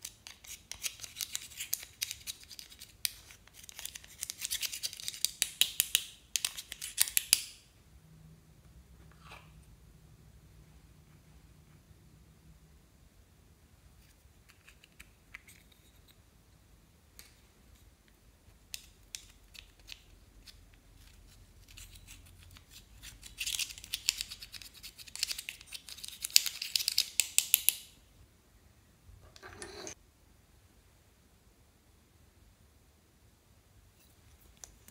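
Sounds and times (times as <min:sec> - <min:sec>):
gritty scratching of eyeshadow: 0:29.3 - 0:30.0.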